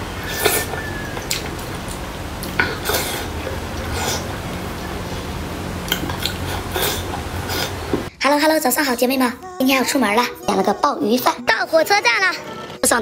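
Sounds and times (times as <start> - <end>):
chewing and mouth smacks: 0.5 - 3.0, 5.9 - 6.6.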